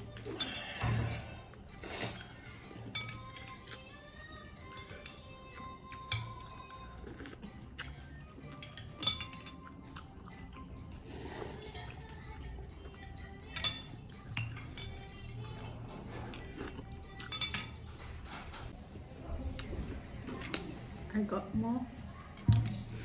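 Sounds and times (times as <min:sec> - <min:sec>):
chopsticks clinking on a bowl: 0:00.0 - 0:00.8, 0:02.2 - 0:04.0, 0:04.6 - 0:10.6, 0:11.6 - 0:18.4
faint background music: 0:00.0 - 0:23.0.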